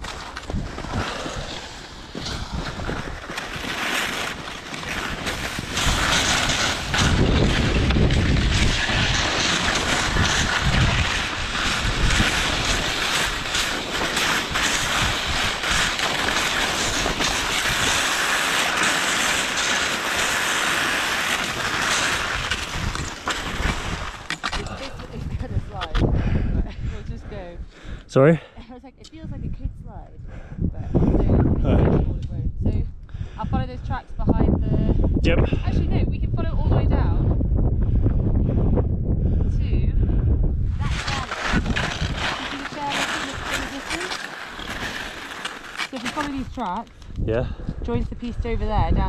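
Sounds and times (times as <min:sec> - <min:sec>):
small knocks from skis: 0:00.0 - 0:24.7, 0:40.8 - 0:47.1
skis scraping on hard snow: 0:00.0 - 0:26.0, 0:40.7 - 0:47.2
wind buffeting the microphone: 0:00.0 - 0:49.0.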